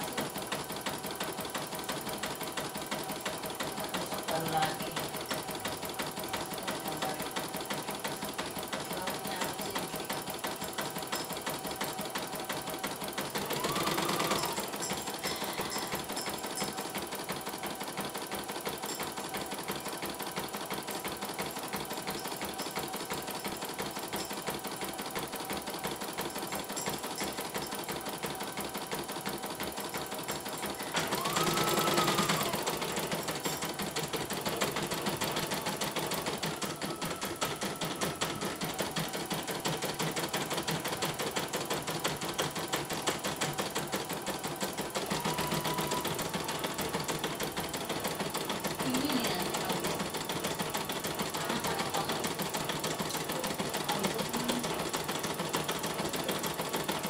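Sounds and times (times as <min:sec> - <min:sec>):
embroidery machine needle clatter: 0:00.0 - 0:57.0
machine whine: 0:12.8 - 0:17.1, 0:21.4 - 0:41.1, 0:42.4 - 0:55.1.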